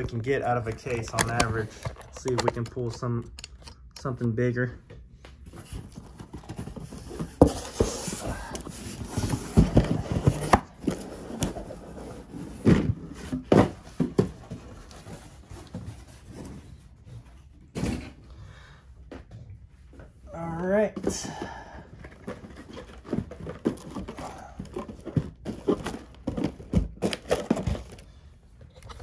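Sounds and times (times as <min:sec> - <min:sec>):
boxes knocking and rubbing: 0:05.5 - 0:18.2, 0:21.0 - 0:28.0.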